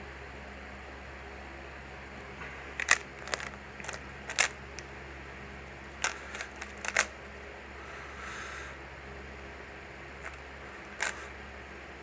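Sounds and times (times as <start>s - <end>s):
puzzle cube clicking: 2.8s - 4.6s, 6.0s - 7.1s, 10.2s - 11.2s.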